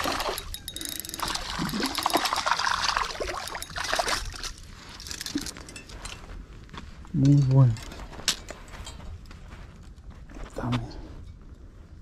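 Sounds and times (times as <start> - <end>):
spinning reel reeling: 0.0 - 2.0
fish splashing and thrashing in water: 0.0 - 5.5.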